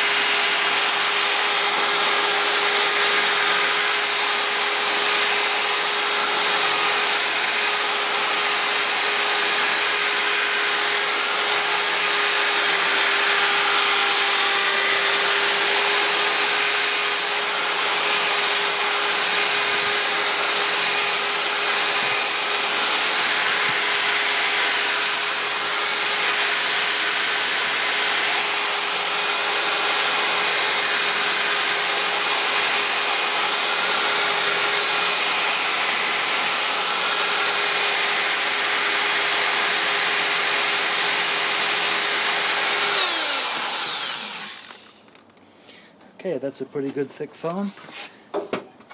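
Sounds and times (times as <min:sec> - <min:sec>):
power drill running: 0:00.0 - 0:45.2.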